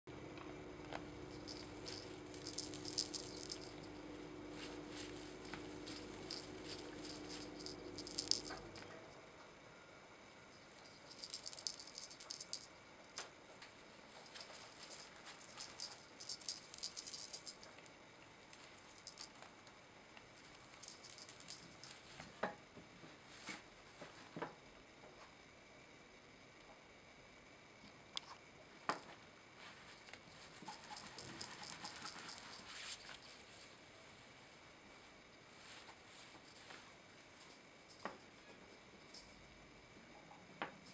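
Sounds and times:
tinsel wand rattling and jingling: 1.3s - 9.0s, 10.7s - 13.3s, 14.1s - 17.8s, 18.8s - 19.4s, 20.4s - 22.2s, 29.7s - 33.6s.

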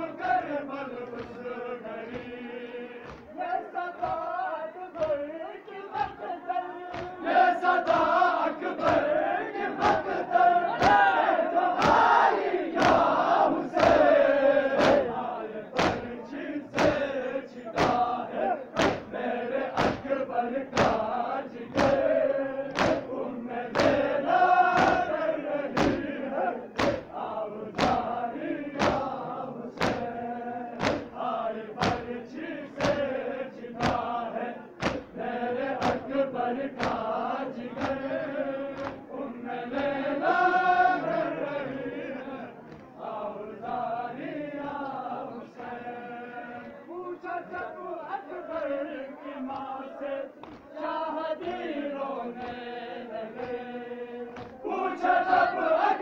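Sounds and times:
crowd of men chanting: 0.0s - 56.0s
hands slapping chests: 0.9s - 2.4s, 3.0s - 3.4s, 5.0s - 5.3s, 6.9s - 9.1s, 9.7s - 14.1s, 14.7s - 17.1s, 17.7s - 30.2s, 30.8s - 31.2s, 31.8s - 32.2s, 32.8s - 33.2s, 33.8s - 34.2s, 34.8s - 39.1s, 42.6s - 43.0s, 46.5s - 46.8s, 49.5s - 49.8s, 50.4s - 50.7s, 52.3s - 52.6s, 53.3s - 53.6s, 54.3s - 54.6s.

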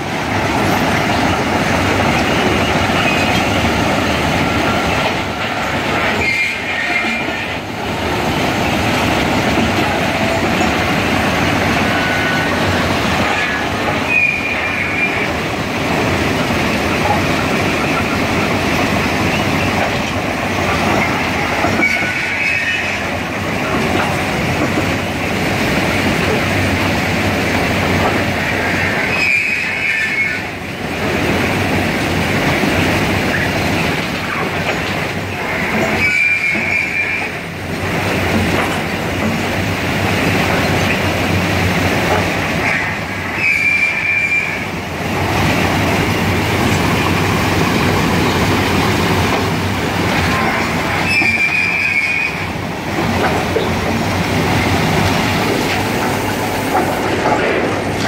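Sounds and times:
train machinery clatter and rumble: 0.0s - 58.0s
short high squeal: 6.0s - 7.4s, 13.4s - 15.4s, 21.8s - 23.1s, 29.0s - 30.5s, 35.9s - 37.4s, 42.6s - 44.7s, 50.6s - 52.5s.

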